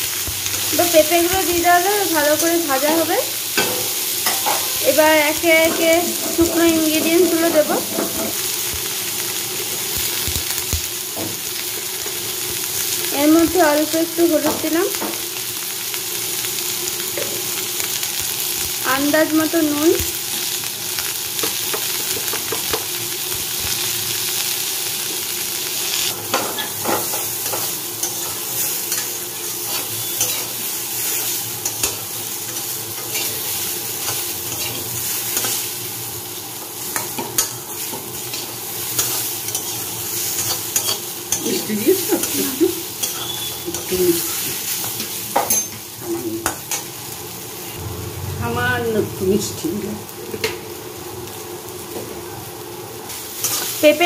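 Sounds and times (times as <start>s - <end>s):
fruit sizzling in oil: 0.0s - 54.0s
metal spatula scraping pan: 43.0s - 44.0s.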